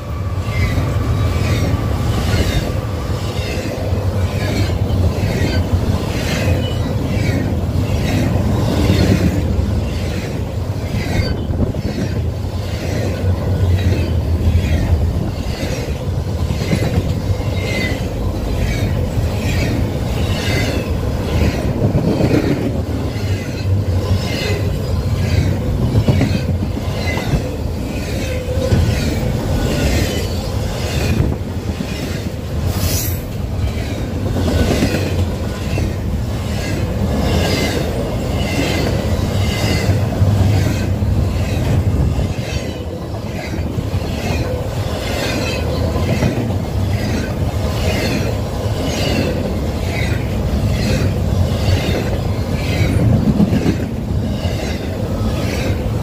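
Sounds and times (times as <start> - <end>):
low train rumble: 0.0 - 56.0
wheel squeal: 4.4 - 9.2, 9.8 - 12.1.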